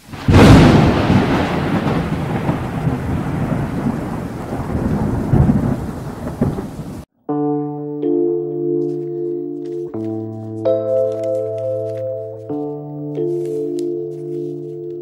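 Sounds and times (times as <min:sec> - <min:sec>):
thunder crack and rumble: 0:00.0 - 0:07.1
soft synthesizer chords: 0:07.3 - 0:15.0.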